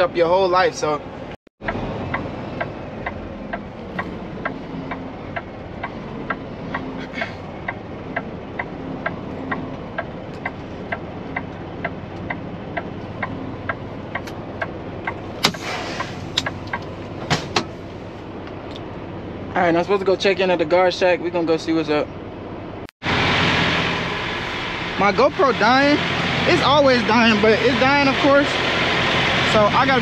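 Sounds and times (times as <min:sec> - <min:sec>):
truck engine running: 0:00.0 - 0:30.0
turn signal ticking: 0:01.6 - 0:19.0
short hiss: 0:15.5 - 0:16.2.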